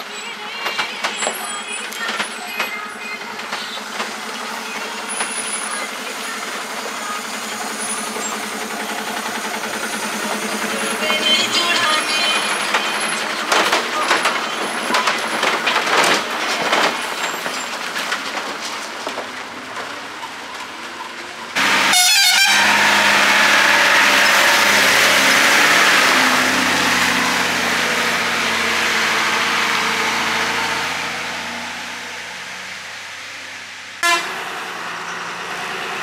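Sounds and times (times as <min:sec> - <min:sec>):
truck diesel engines running: 0:00.0 - 0:36.0
truck horns: 0:10.7 - 0:15.1, 0:21.6 - 0:31.6, 0:34.0 - 0:35.0
knocks and rattles: 0:12.3 - 0:21.4.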